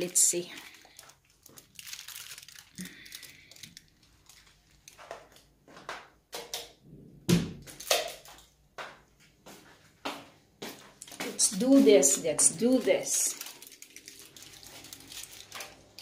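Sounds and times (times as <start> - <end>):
aluminium foil crinkling: 0.0 - 5.5, 11.0 - 16.0
knocks and thump: 6.4 - 7.7.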